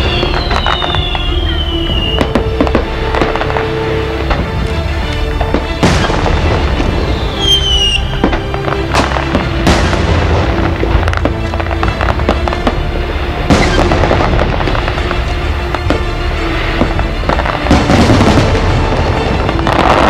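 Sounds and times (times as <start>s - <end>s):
whistling firework shell: 0.0s - 2.8s, 6.8s - 8.8s, 13.5s - 14.0s
fireworks booming and crackling: 0.0s - 20.0s.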